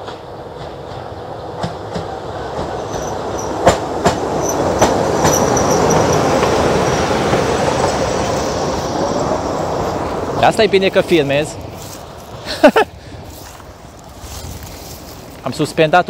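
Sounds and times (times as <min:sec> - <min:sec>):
wheels clacking over rail joints: 0:00.0 - 0:12.4
locomotive engine and wheel rumble: 0:00.0 - 0:16.0.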